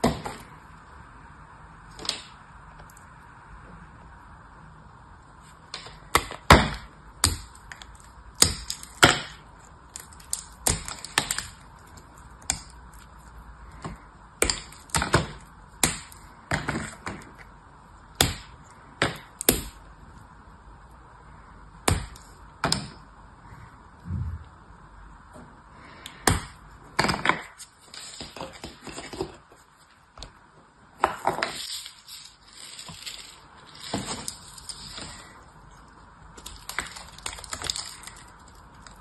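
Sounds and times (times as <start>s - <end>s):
hard soap cracking and crunching: 5.7s - 19.8s, 26.0s - 30.3s, 31.0s - 39.0s.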